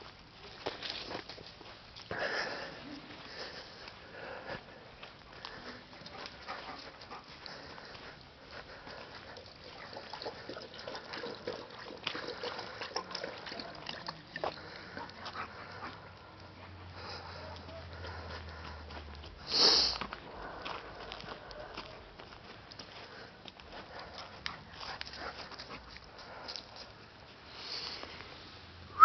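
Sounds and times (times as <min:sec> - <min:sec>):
small clicks and scuffs: 0:00.0 - 0:02.2, 0:04.6 - 0:09.6, 0:14.0 - 0:28.4.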